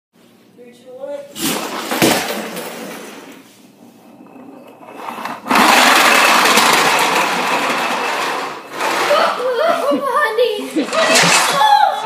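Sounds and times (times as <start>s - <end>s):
wheels running on wooden floor: 1.4s - 3.4s, 4.0s - 12.0s
toy truck electric motor whining: 4.9s - 9.6s.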